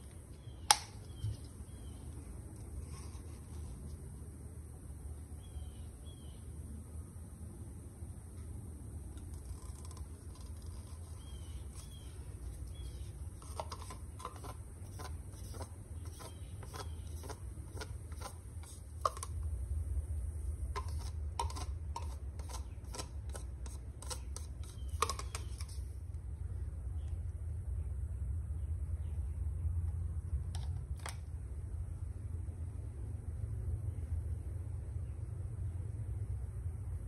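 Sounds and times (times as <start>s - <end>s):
steady low hum: 0.0s - 37.0s
stick knocking against plastic cup: 13.4s - 19.4s, 20.7s - 25.7s.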